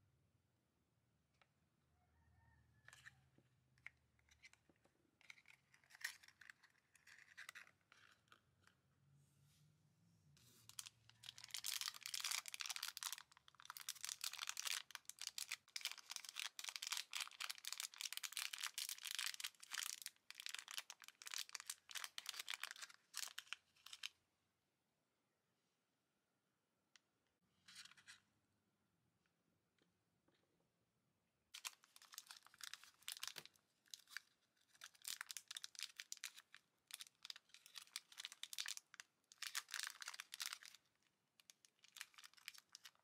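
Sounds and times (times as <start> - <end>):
plastic bag crinkling and tearing: 10.7 - 24.1, 31.6 - 40.8, 41.4 - 43.0.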